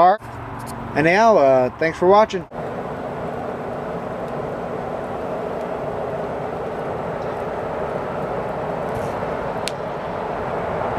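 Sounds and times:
coal fire roaring: 0.0 - 10.9
faint steady hum: 2.5 - 10.9
small pop from fire: 8.9 - 9.9.

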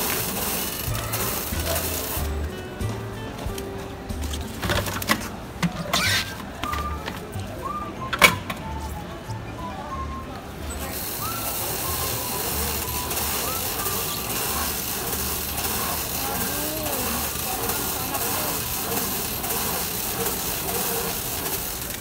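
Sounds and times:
wrapping machine hissing: 0.0 - 2.5, 10.8 - 22.0.

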